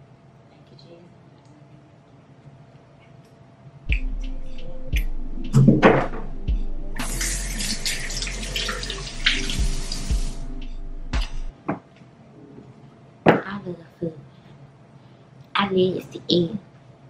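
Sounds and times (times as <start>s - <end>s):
knocks and thump: 5.6s - 6.3s
faucet running into sink: 7.0s - 10.4s.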